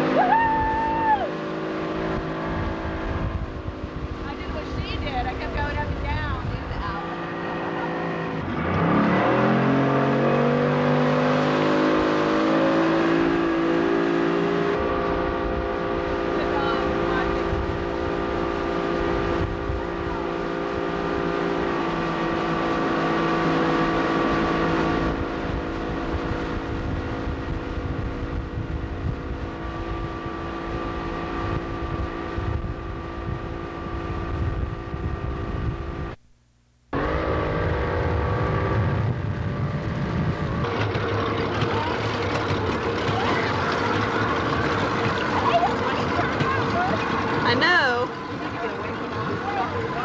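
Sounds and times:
boat engine running: 0.0s - 50.0s
water noise: 0.0s - 50.0s
wind noise: 1.9s - 9.0s, 14.7s - 21.8s, 24.2s - 36.2s, 37.4s - 48.3s.

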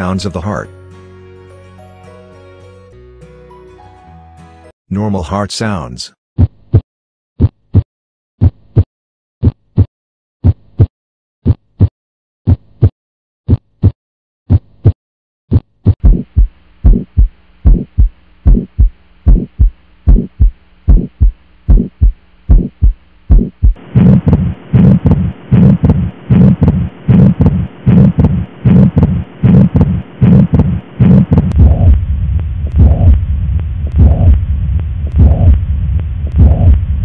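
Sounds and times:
heartbeat lub-dub: 7.4s - 11.9s, 12.5s - 12.9s, 13.5s - 37.0s
steady recording hiss: 16.5s - 37.0s.

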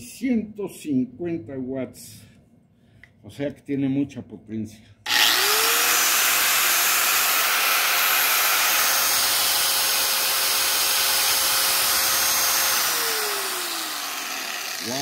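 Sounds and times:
angle grinder running free: 5.1s - 15.0s.

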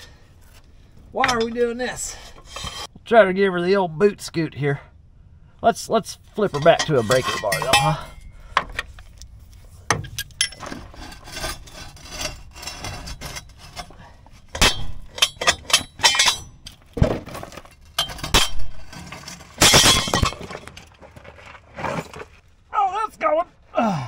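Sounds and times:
metal tools clinking: 6.5s - 8.3s, 10.0s - 10.9s, 12.2s - 16.9s, 17.6s - 20.7s.

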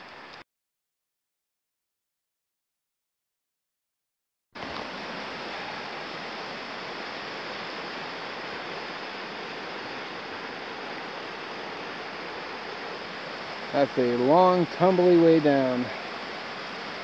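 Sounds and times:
fast river rushing: 4.6s - 17.0s.

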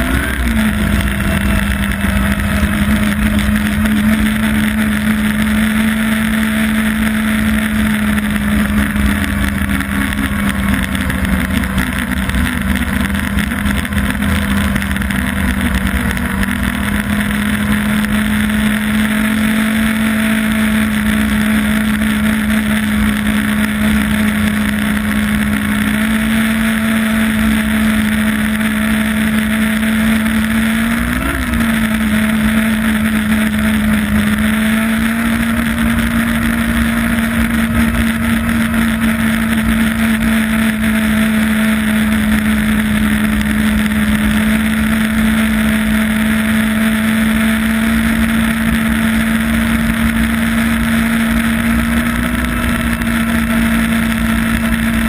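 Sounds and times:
snowmobile engine running: 0.0s - 55.0s.

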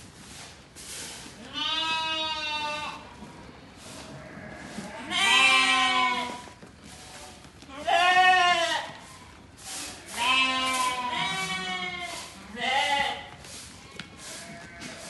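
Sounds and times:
sheep bleating: 1.5s - 3.0s, 4.2s - 6.4s, 7.7s - 9.0s, 10.1s - 13.3s, 14.3s - 15.0s.

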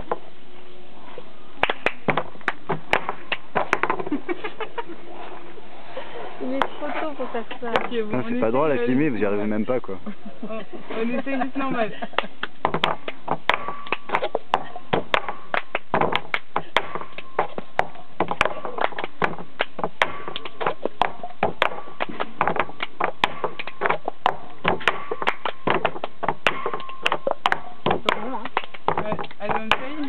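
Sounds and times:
hand claps: 1.6s - 3.4s, 15.5s - 16.5s, 18.8s - 20.6s, 22.8s - 23.8s, 26.8s - 30.0s.

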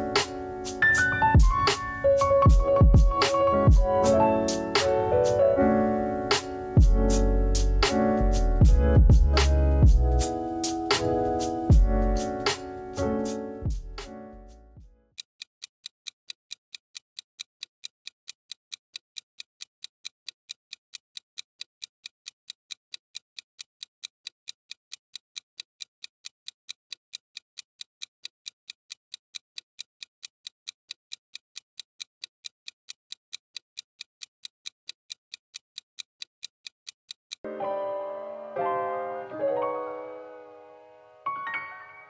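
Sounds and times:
countdown timer ticking: 0.0s - 14.2s, 37.4s - 42.0s.

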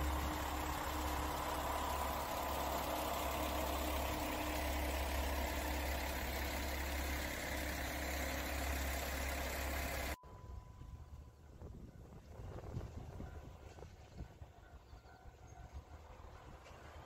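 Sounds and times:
diesel railcar engine idling: 0.0s - 17.0s.

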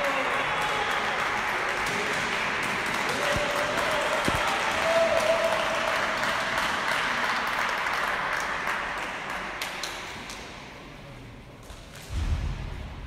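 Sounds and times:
audience applause: 0.0s - 10.1s.

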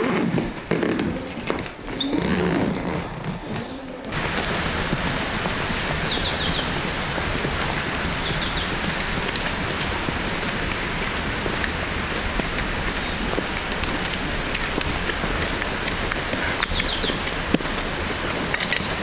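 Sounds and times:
stream water rushing: 4.1s - 19.0s.

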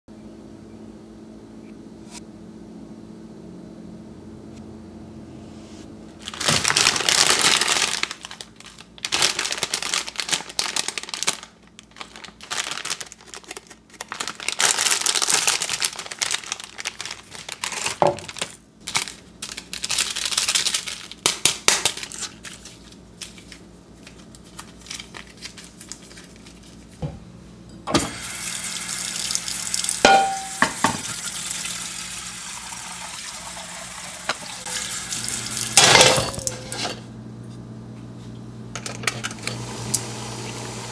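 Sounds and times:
plastic wrapper crinkling: 6.2s - 27.0s
water running into wok: 28.1s - 35.8s.

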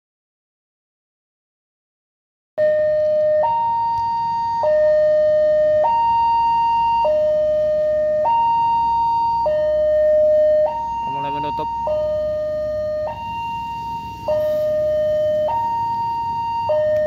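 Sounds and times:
level crossing two-tone alarm: 2.6s - 17.0s.

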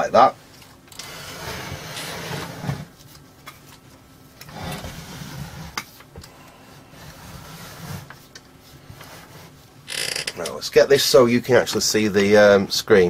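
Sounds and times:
rubbing and scraping on workbench: 1.0s - 3.1s, 4.5s - 6.0s, 6.8s - 9.7s.

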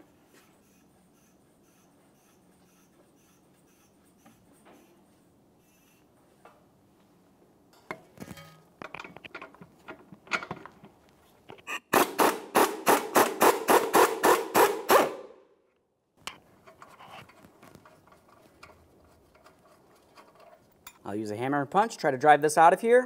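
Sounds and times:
metal tool clicks and knocks: 7.7s - 11.6s.

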